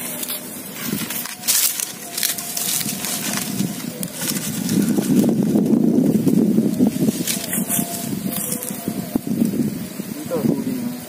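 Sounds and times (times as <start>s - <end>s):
dry stalks rustling and crackling: 0.0s - 9.8s.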